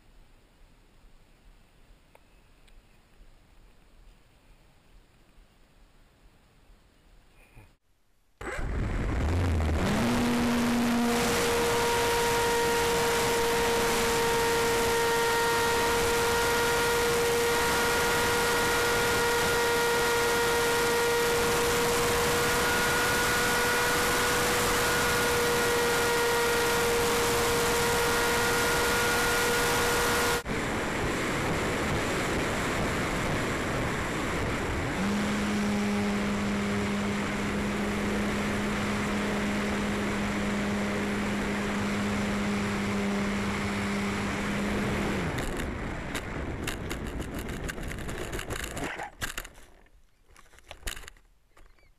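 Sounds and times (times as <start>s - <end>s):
electric motor whine: 8.4s - 47.5s
low motor hum: 8.4s - 48.8s
wind rush: 29.7s - 48.8s.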